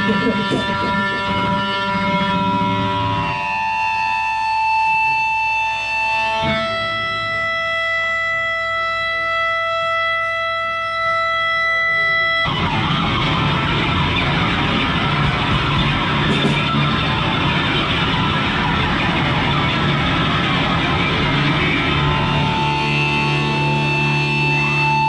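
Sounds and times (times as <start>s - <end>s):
drums and full band: 0.0s - 3.6s, 12.5s - 24.2s
electric guitar chords ringing: 0.0s - 25.0s.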